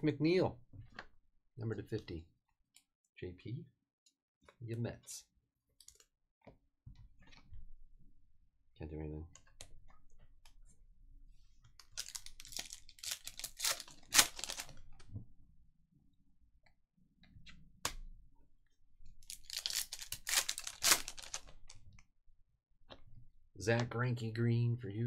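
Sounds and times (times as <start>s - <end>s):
foil wrapper tearing and crinkling: 11.9s - 14.8s, 19.2s - 21.6s.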